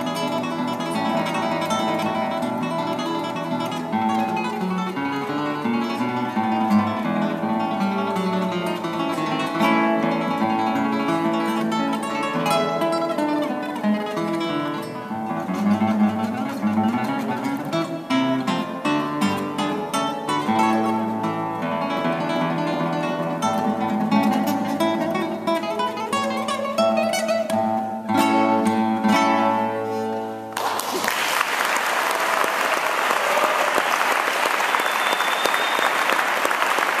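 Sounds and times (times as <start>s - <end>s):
classical guitar playing: 0.0s - 30.6s
audience applauding: 30.5s - 37.0s.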